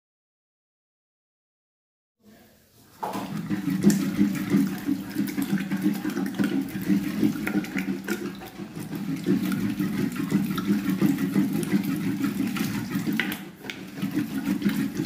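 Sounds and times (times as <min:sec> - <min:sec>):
wet squelching and sloshing: 0:03.0 - 0:15.0.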